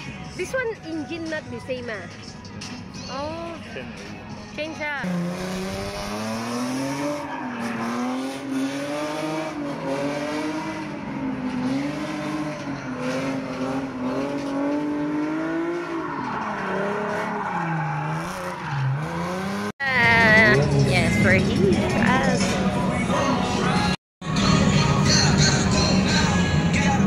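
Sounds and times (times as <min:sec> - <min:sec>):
car engine revving high: 0:05.0 - 0:22.9.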